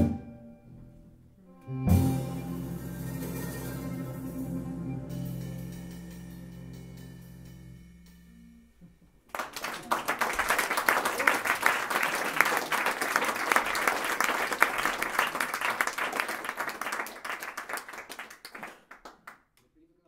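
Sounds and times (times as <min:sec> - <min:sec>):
audience applauding: 0:09.3 - 0:19.4.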